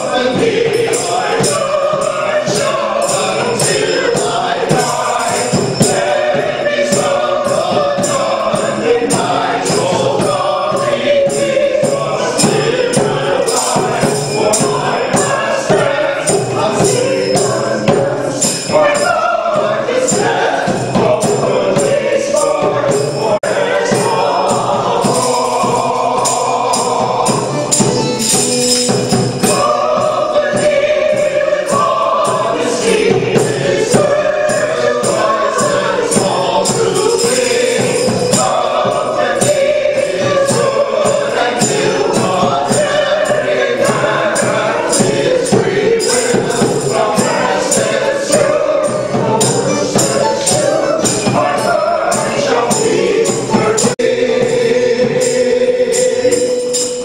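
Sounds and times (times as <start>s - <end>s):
group of singers singing: 0.0s - 57.0s
steady percussive beat: 0.0s - 57.0s.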